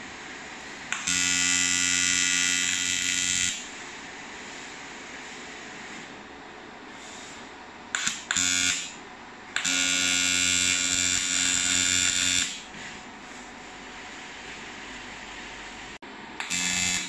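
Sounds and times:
welding arc buzzing: 0.8 - 3.8, 7.9 - 12.7, 16.4 - 17.0.

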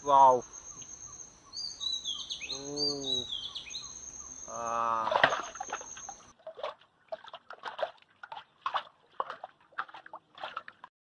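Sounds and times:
fish splashing in metal basin: 5.0 - 10.9.

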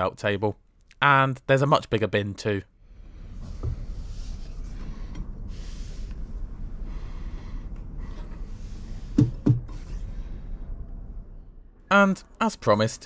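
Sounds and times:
low hum and hiss in train carriage: 2.8 - 13.0.

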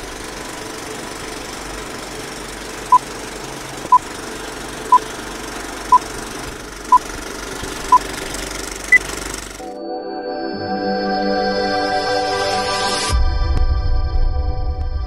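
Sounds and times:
film projector clatter: 0.0 - 9.7.

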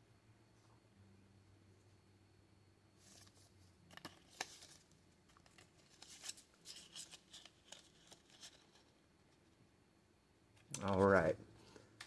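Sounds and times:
cards and paper shuffling: 3.0 - 9.6, 10.7 - 11.4.

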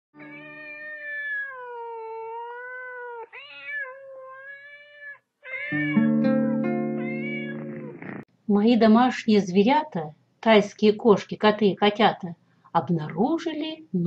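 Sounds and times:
cat meowing: 0.2 - 6.1, 6.8 - 8.2.

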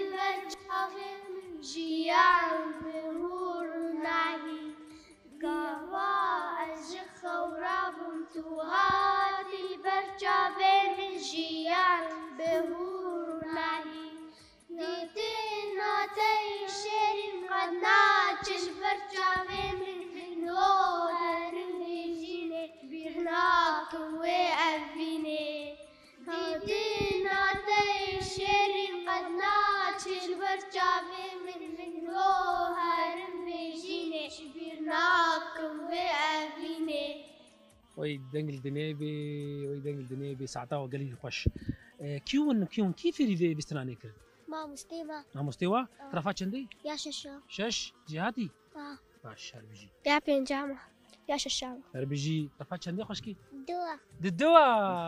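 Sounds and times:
girls singing: 0.0 - 37.7.

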